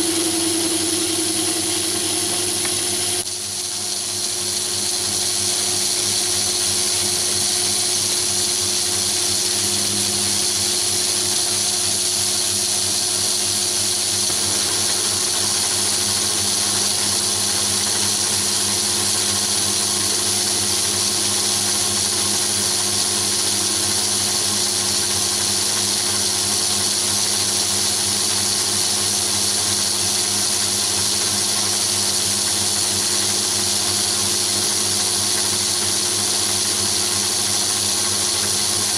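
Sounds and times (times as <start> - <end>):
lathe motor whining: 0.0 - 3.3, 19.4 - 26.1
lathe tool cutting metal bar: 0.0 - 3.3, 14.2 - 27.2.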